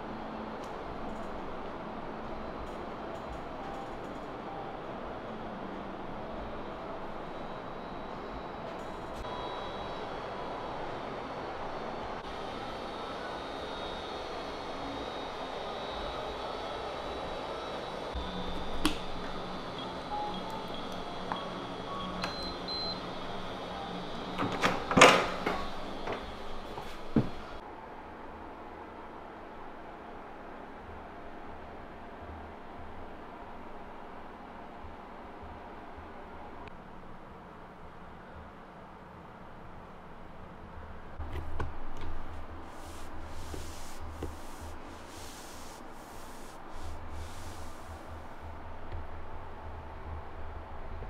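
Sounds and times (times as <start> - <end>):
keypad beeps: 19.1 - 25.8
hand sliding over wooden floor: 42.2 - 48.3.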